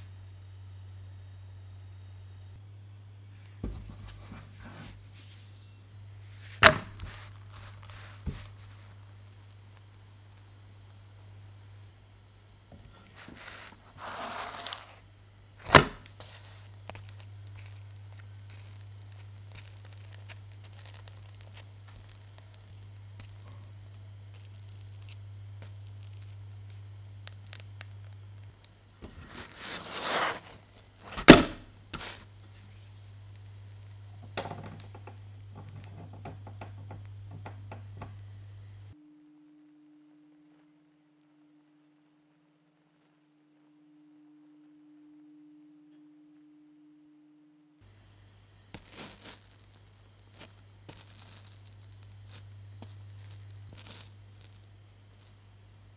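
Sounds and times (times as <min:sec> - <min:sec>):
steady low hum: 0:00.0 - 0:55.9
bread slapping onto a pan: 0:06.4 - 0:08.6
dough crackling in frying pan: 0:12.2 - 0:39.0, 0:47.9 - 0:55.9.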